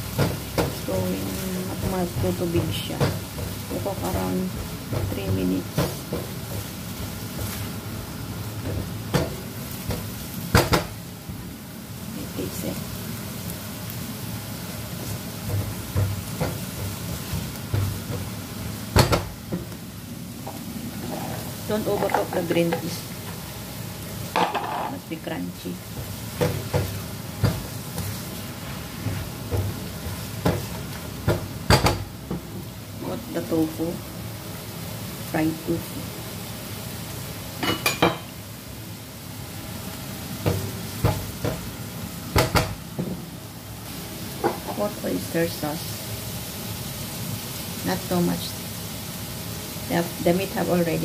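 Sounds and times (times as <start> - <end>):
vegetables and meat sizzling in wok: 0.0 - 51.0
spatula knocking on pan: 8.6 - 11.0, 15.4 - 18.3, 18.9 - 19.8, 24.3 - 25.0, 29.4 - 32.4, 40.4 - 41.7, 42.3 - 43.2
spatula scraping in a wok: 20.5 - 23.5, 26.0 - 31.0
spatula scraping a pan: 20.9 - 22.3.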